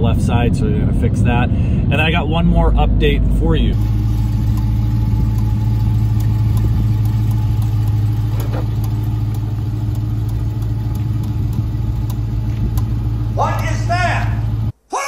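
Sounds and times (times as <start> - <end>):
car engine humming: 0.0 - 14.8
faint light ticks: 8.8 - 12.9.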